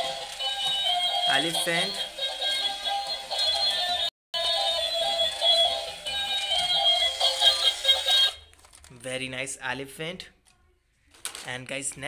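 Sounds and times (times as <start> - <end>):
tinny electronic toy melody: 0.0 - 8.4.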